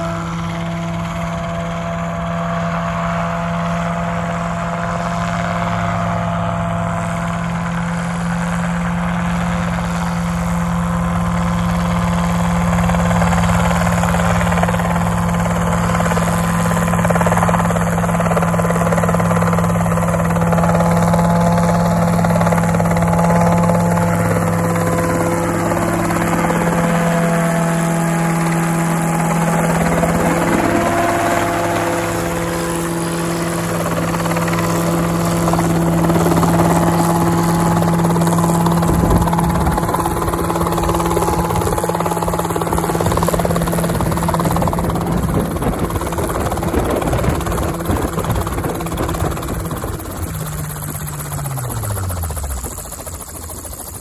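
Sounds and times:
helicopter engine and rotor: 0.0 - 54.0.

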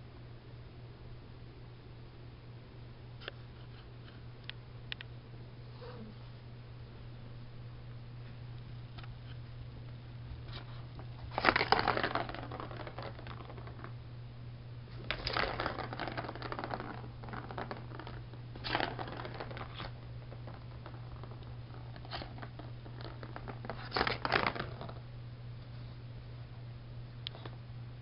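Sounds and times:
cat toy ball clattering: 11.0 - 14.0, 15.0 - 25.0.

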